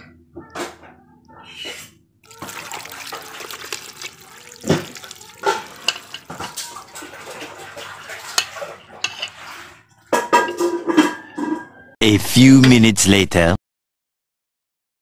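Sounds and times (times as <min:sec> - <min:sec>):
liquid pouring into pot: 0:02.2 - 0:09.8.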